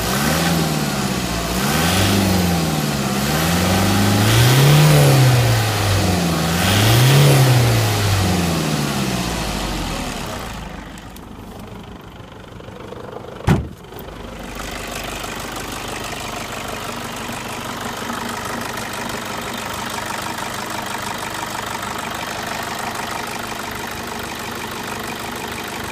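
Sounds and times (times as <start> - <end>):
diesel engine revving and idling: 0.0 - 25.9.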